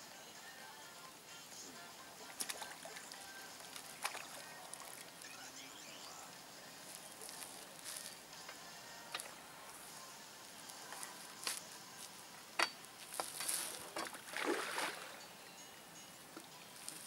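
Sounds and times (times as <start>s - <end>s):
water splash: 2.4s - 5.0s, 13.6s - 15.2s.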